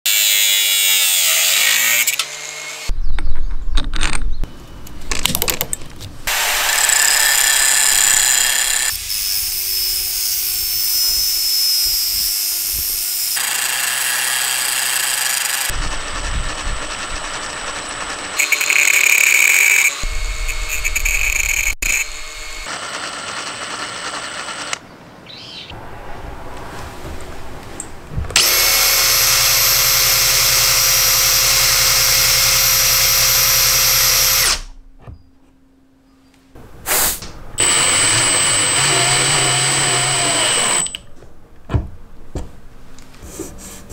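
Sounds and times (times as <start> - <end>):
drill driving bolt into wood: 6.3 - 9.3, 28.4 - 34.7, 37.6 - 41.0
angle grinder grinding steel: 6.3 - 24.8, 28.4 - 34.8, 37.6 - 41.0
cordless drill spinning: 6.3 - 24.8, 28.4 - 34.7, 37.6 - 41.0.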